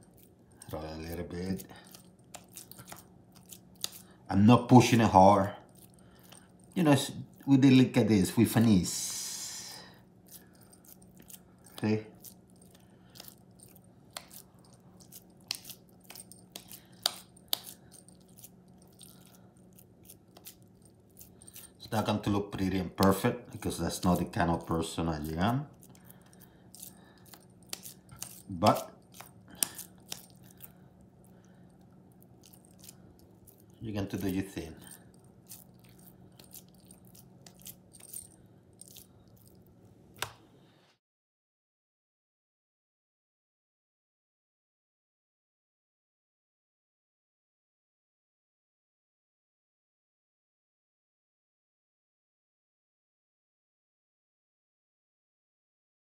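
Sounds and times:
hands pressing raw ground beef: 0.0 - 4.2, 10.2 - 30.8, 31.9 - 39.5.

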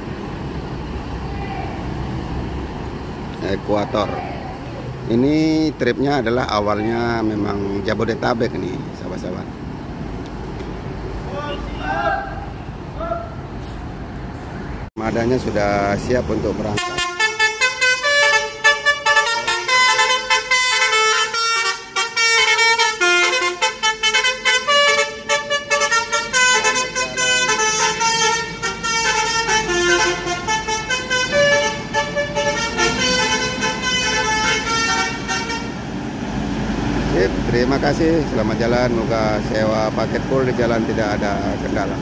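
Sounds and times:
bus horn playing melody: 16.8 - 35.8.

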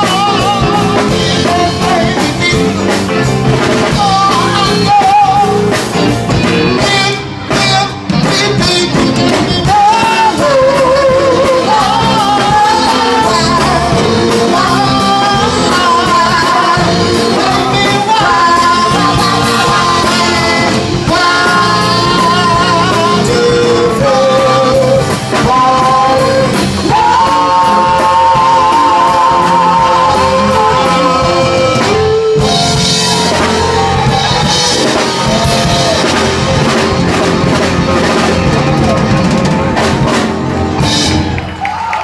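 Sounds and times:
drum kit with cymbals: 0.0 - 41.6
electric guitar: 0.0 - 42.0
singer with vibrato: 6.7 - 39.5.

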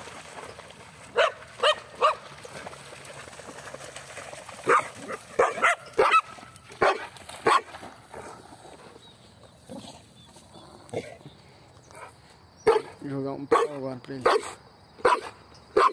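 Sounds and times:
dog barking: 1.2 - 2.2, 4.6 - 7.7, 12.6 - 15.9.

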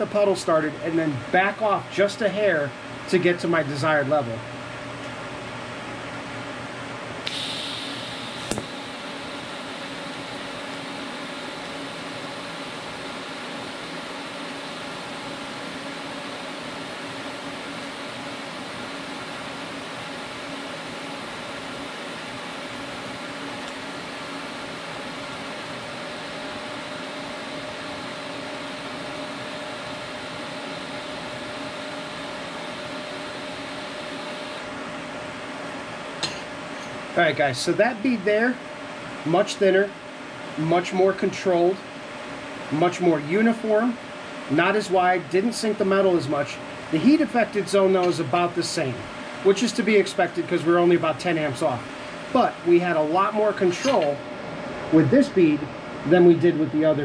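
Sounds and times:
welding arc hissing and humming: 7.1 - 35.1
welding arc striking click: 7.2 - 8.8, 53.7 - 54.2.

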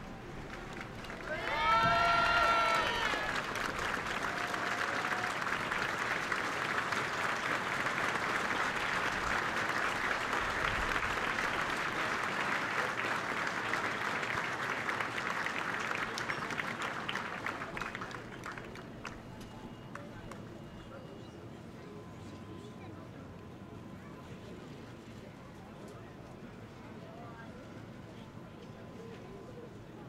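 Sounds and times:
crowd applauding: 0.0 - 20.5.

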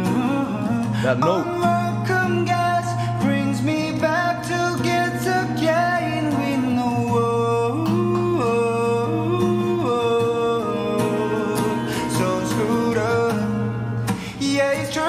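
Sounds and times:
acoustic guitar accompaniment: 0.0 - 15.0
man singing: 0.0 - 15.0.

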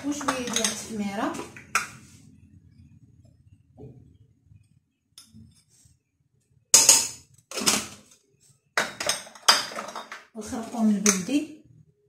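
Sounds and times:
glass jars clinking on tile: 0.0 - 1.0, 8.8 - 11.4.

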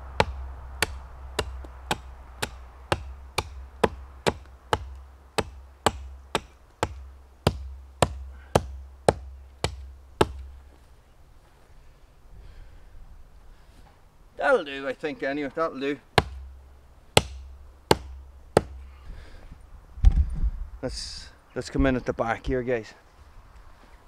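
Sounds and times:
axe chopping tree trunk: 0.0 - 10.6, 16.1 - 16.6, 17.2 - 18.9.

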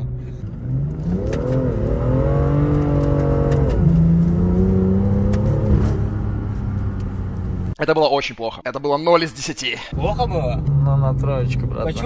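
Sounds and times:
car engine revving: 0.0 - 7.8.

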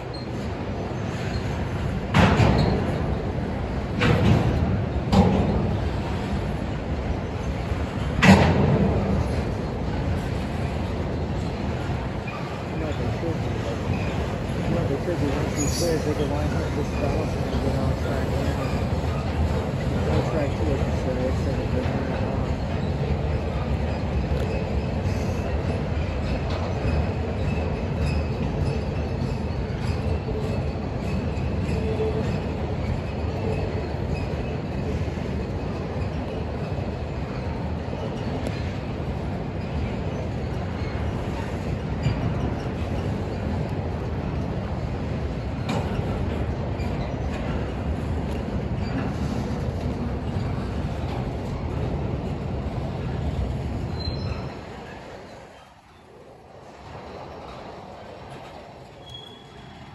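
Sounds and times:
faint high wheel squeal: 0.0 - 1.7, 11.4 - 43.6, 53.0 - 56.0, 57.0 - 59.9
train wheels rumbling on rails: 0.0 - 59.9.

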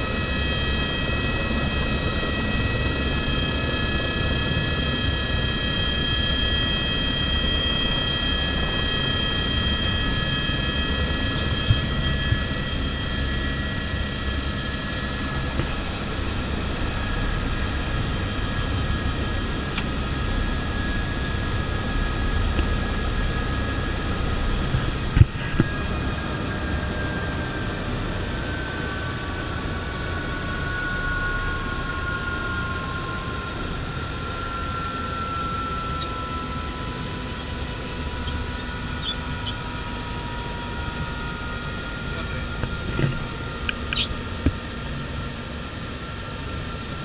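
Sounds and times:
helicopter rotor and turbine rumble: 0.0 - 47.0
high turbine whine: 0.0 - 47.0.

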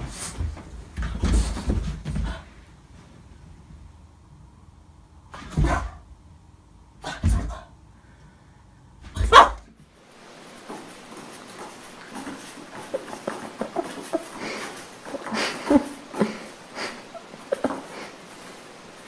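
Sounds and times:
faint steady hiss: 0.0 - 19.0
dog barking: 9.2 - 9.6.

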